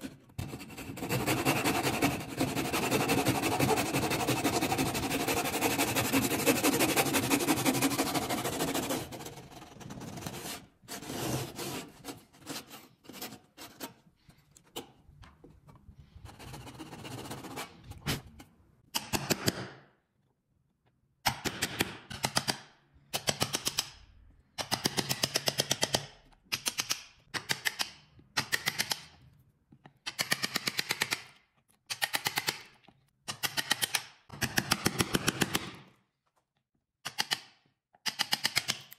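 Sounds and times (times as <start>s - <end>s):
hand saw cutting wood: 0.0s - 14.0s.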